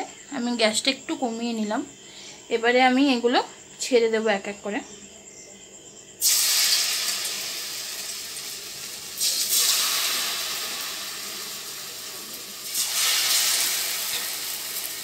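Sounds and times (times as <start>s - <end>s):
batter pieces dropped into hot oil: 6.2s - 15.0s
oil sizzling: 6.2s - 15.0s.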